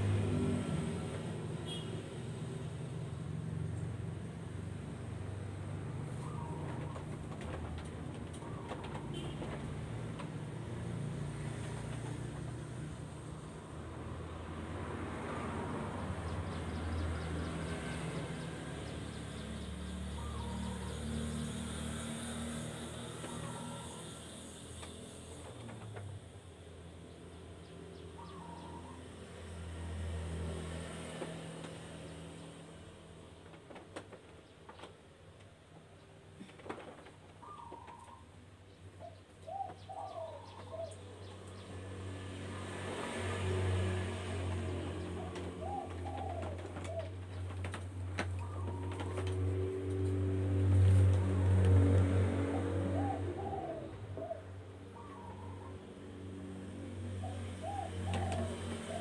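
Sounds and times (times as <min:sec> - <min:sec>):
doves cooing: 0:05.6 - 0:13.1, 0:20.0 - 0:21.6, 0:22.6 - 0:26.2, 0:28.2 - 0:29.1, 0:36.4 - 0:38.4, 0:39.0 - 0:41.7, 0:43.1 - 0:59.0
low engine-like hum: 0:37.4 - 0:59.0.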